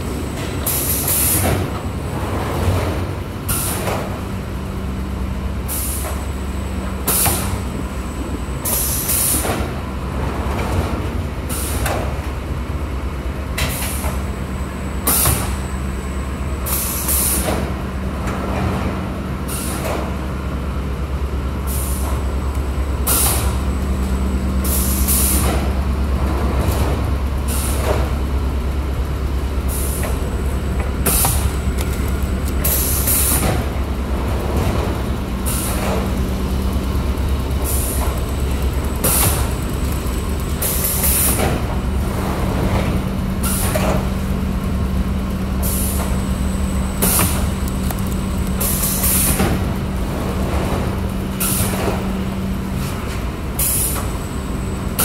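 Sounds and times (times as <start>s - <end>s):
machine hum: 20.8s - 53.6s
pneumatic air hisses: 24.6s - 25.6s, 53.6s - 54.1s.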